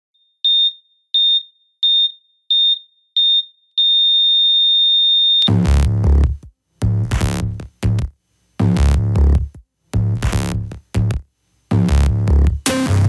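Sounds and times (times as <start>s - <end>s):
heart monitor beeping: 0.2s - 5.5s
electronic music with drum beat: 5.5s - 13.0s.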